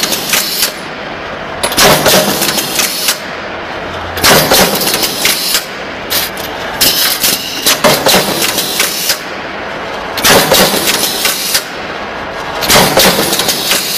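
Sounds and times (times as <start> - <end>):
steady machine hum: 0.0 - 13.9
metallic punch press strokes: 10.2 - 11.8, 12.6 - 13.9.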